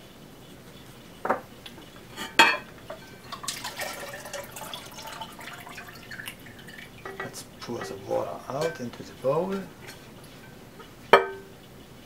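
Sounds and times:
water dripping and trickling: 2.7s - 9.5s
ceramic lid knocking bowl: 11.2s - 11.5s.

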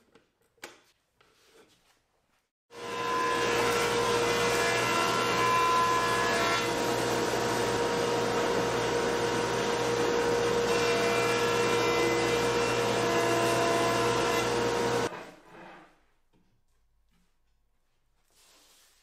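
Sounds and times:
jointer machine drone: 2.9s - 15.1s.

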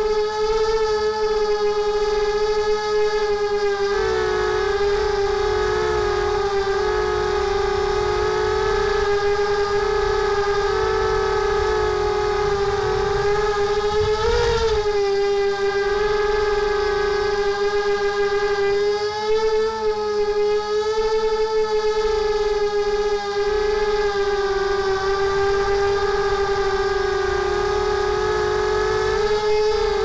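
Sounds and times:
drone motors whining: 0.0s - 30.0s
low rushing noise: 3.9s - 17.3s.

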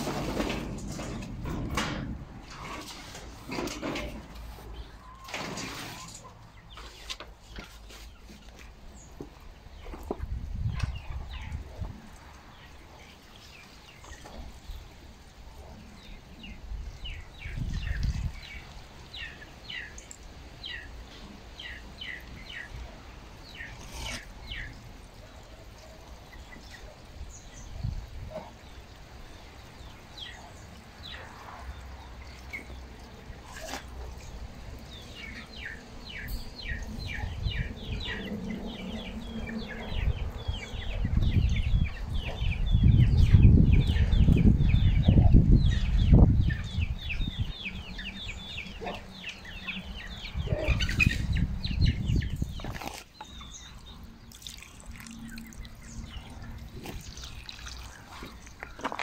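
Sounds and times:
chickens clucking: 27.9s - 54.2s
water poured onto cement mix: 54.2s - 59.0s.

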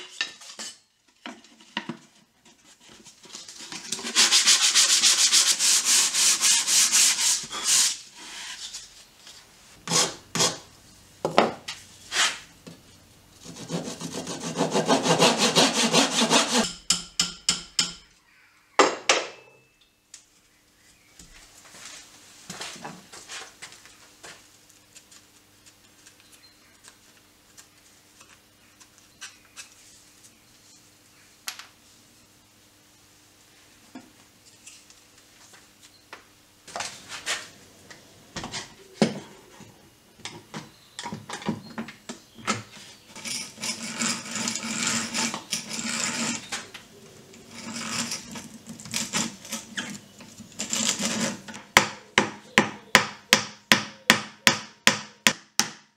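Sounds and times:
tool rasping on wood: 13.4s - 16.7s, 43.6s - 46.5s.

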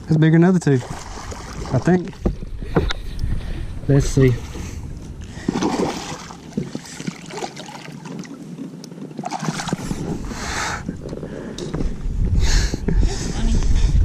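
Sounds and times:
water sloshing: 0.6s - 10.3s.

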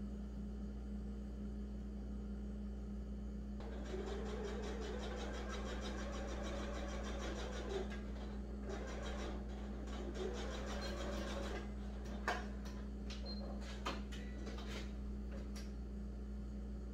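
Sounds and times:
sewing machine stitching: 3.6s - 12.8s.

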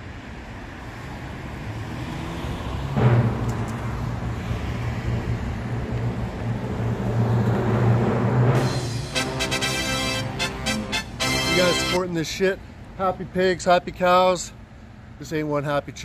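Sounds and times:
vehicle engine and tyre noise: 0.0s - 8.9s.

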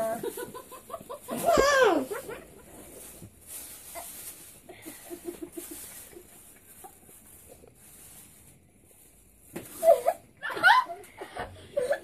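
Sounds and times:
stifled giggling: 4.7s - 6.3s, 9.8s - 12.0s.

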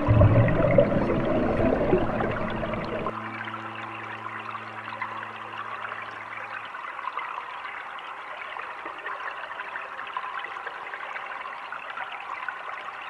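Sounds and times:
low drone: 0.0s - 7.2s
crackling fizzing water: 0.0s - 13.0s.

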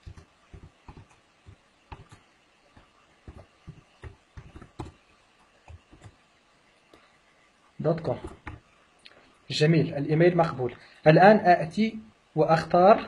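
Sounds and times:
keyboard typing: 0.0s - 6.2s, 8.1s - 8.6s.

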